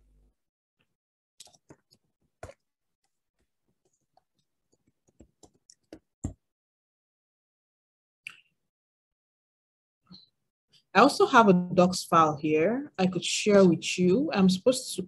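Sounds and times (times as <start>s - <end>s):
laptop keys clicking: 4.8s - 6.4s.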